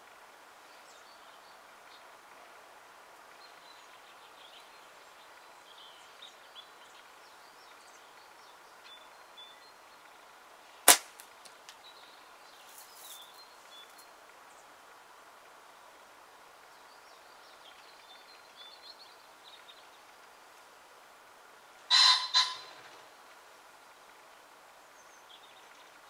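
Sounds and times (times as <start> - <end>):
faint birdsong chirps: 0.0 - 26.0
slingshot band snap: 10.9 - 11.8.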